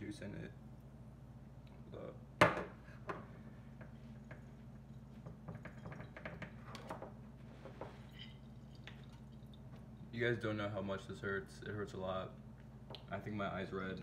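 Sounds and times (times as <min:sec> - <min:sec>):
clicks and knocks of glass handling: 0:05.2 - 0:07.1.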